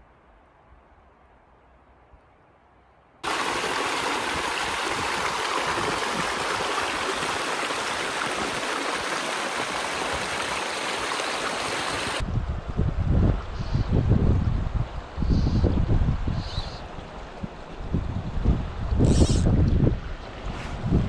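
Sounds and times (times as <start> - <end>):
creek rushing over rocks: 3.2 - 12.2.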